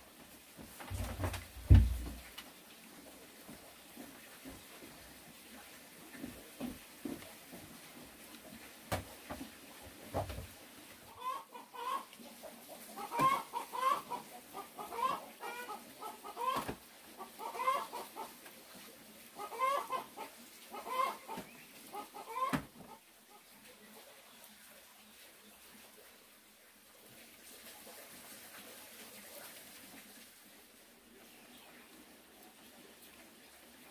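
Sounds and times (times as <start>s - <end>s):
soft knocks: 0.9s - 2.2s.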